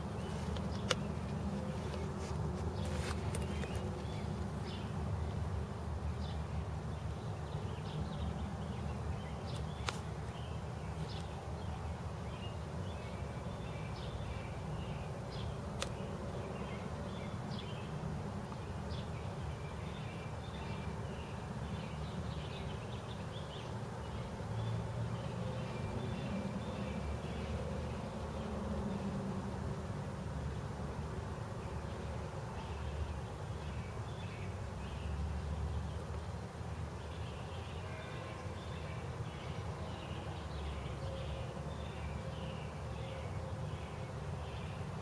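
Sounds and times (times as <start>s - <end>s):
small birds chirping: 0.0s - 29.2s.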